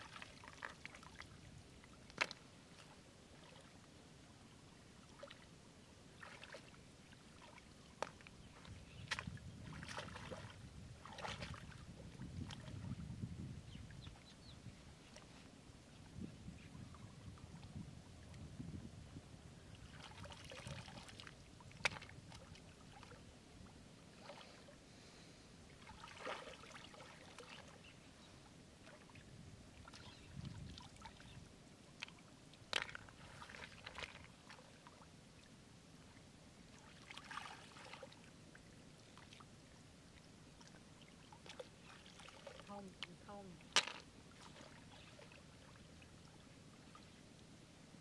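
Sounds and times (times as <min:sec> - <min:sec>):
hands splashing in muddy water: 0:09.0 - 0:11.8.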